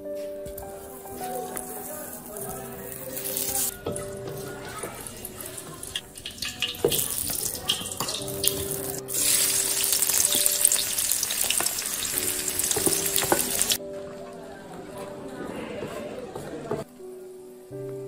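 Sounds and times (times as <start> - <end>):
shallots frying: 0.5 - 13.8
fat sizzling in a wok: 0.8 - 13.8
wooden spatula scraping a pan: 1.2 - 7.1.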